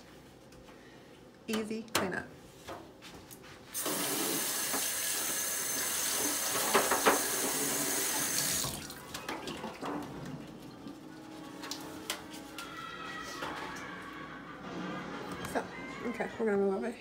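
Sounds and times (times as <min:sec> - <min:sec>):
faucet running into sink: 0:03.8 - 0:09.9.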